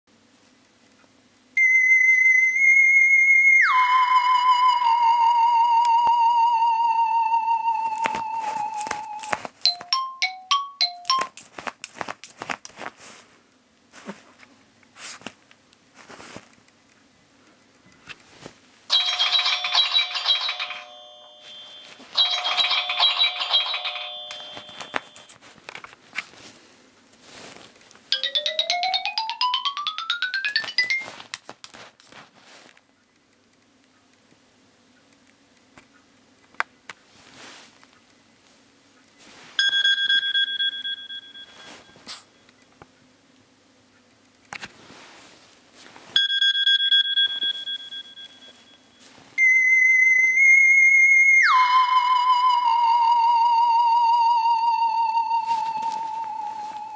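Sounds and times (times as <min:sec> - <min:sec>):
phone alarm chime: 0:09.7 - 0:11.3, 0:18.9 - 0:25.3, 0:39.6 - 0:42.2, 0:46.2 - 0:50.6
dog paws tapping and scratching: 0:11.2 - 0:13.3
soft rustling: 0:11.3 - 0:16.7, 0:17.8 - 0:18.9, 0:24.6 - 0:28.1, 0:30.7 - 0:33.0, 0:37.0 - 0:39.6, 0:41.2 - 0:42.3, 0:44.6 - 0:46.2, 0:55.4 - 0:56.9.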